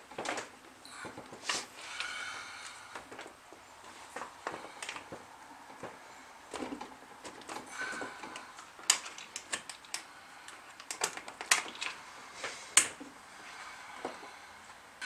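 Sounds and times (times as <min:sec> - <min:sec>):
plastic and metal clicks: 0:10.8 - 0:12.0.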